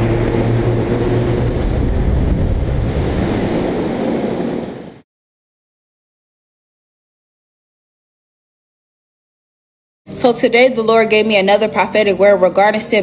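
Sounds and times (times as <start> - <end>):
low steady hum: 0.0 - 4.8
stormy surf and wind: 0.0 - 5.0.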